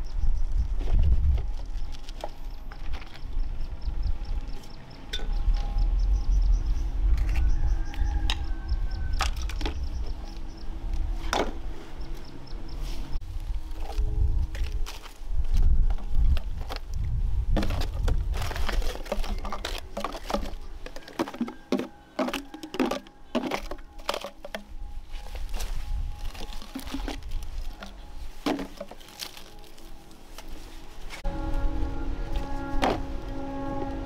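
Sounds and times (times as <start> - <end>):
plastic bottles crinkling and knocking: 15.9 - 30.5.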